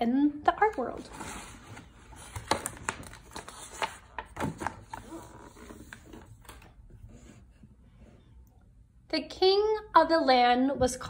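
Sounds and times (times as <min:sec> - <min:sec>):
paper page rustling and crackling: 0:01.0 - 0:06.6.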